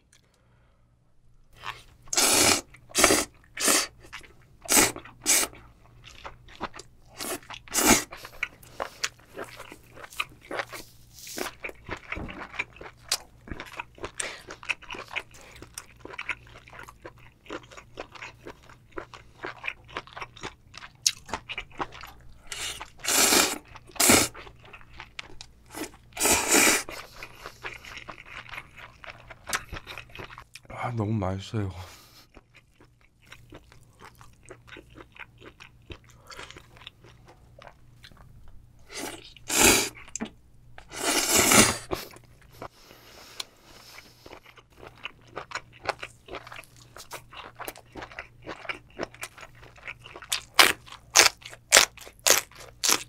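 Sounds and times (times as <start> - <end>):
noodles slurped: 1.6 - 5.6, 22.5 - 24.4, 25.7 - 27.9, 40.9 - 42.2
wet chewing: 1.6 - 30.7, 39.0 - 53.0.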